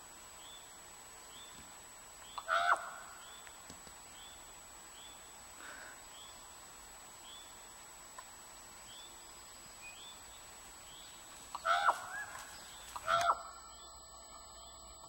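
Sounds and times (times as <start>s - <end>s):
dogs yelping: 11.6s - 13.5s.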